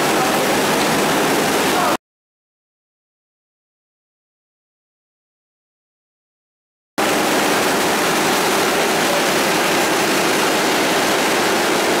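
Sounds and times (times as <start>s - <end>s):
factory processing machinery running: 0.0s - 2.0s, 7.0s - 12.0s.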